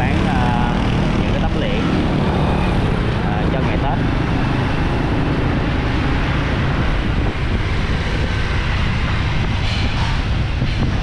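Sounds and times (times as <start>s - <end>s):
city street traffic: 0.0s - 11.0s
wind rumble on microphone: 0.0s - 11.0s.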